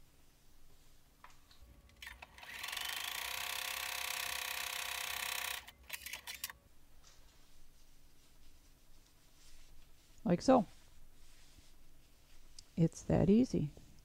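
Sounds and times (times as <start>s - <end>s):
sewing machine motor whirring: 2.0s - 6.5s.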